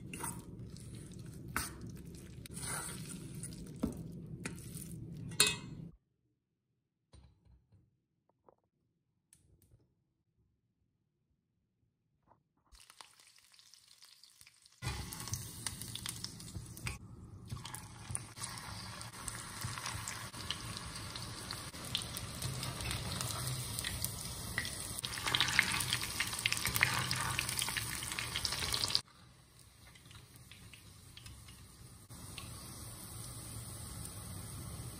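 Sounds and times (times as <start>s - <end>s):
hot oil sizzling and crackling: 12.8s - 34.9s.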